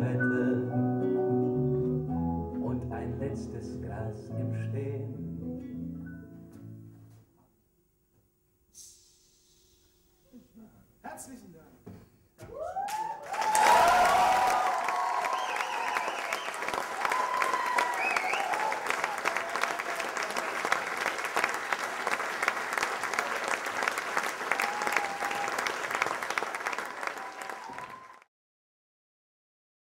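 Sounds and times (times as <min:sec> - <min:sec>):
audience applauding: 0:12.8 - 0:28.3.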